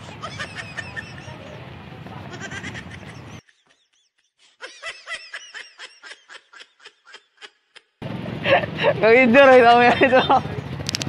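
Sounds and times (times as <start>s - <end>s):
street noise: 0.0s - 3.4s, 8.0s - 11.0s
voices: 0.0s - 3.4s, 8.4s - 11.0s
comedy laugh sound effect: 0.2s - 1.3s, 2.4s - 9.0s.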